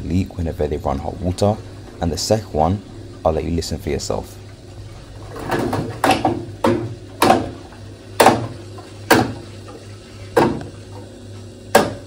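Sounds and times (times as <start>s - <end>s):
steady low hum: 0.0s - 12.0s
gas boiler banging: 5.0s - 12.0s.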